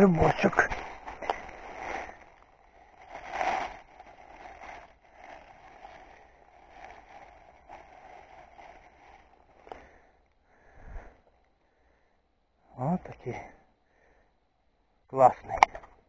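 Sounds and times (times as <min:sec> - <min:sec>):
rustling of dry leaves: 0:00.0 - 0:10.8.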